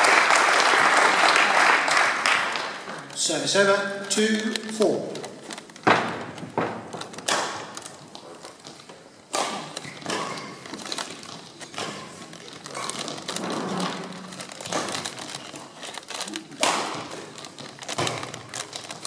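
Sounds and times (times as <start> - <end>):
light footfalls: 5.3 - 15.8
rackets hitting shuttlecock: 5.8 - 8.2, 9.3 - 10.8, 16.6 - 17.3.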